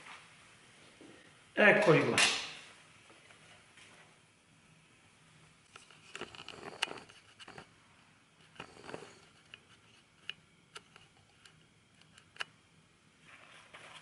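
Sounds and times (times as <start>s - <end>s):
paper towel rustle: 13.2s - 14.0s.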